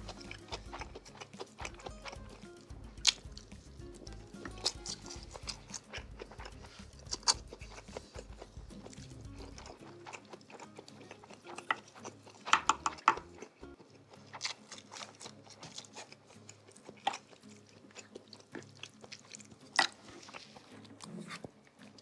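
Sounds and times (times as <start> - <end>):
mouth clicks and smacks: 0.0 - 22.0
wet chewing and biting: 0.0 - 22.0.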